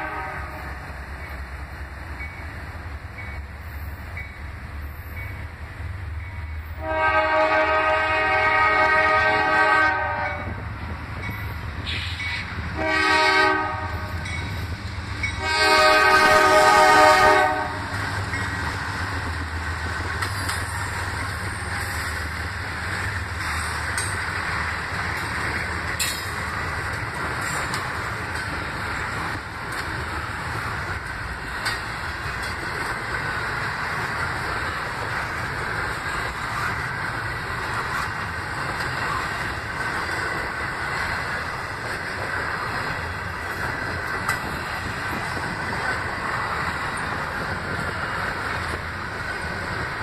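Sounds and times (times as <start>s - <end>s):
locomotive air horn blasts: 0.0s - 0.7s, 6.8s - 10.6s, 12.8s - 14.2s, 15.4s - 17.9s
freight train rumbling past: 0.0s - 50.0s
wheels clicking over rail joints: 13.7s - 50.0s.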